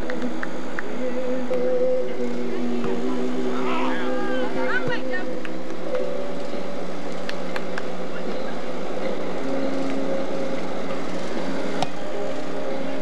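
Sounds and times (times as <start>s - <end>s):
steady hum: 0.0s - 13.0s
faint voices of people playing: 1.0s - 6.8s, 7.4s - 10.6s.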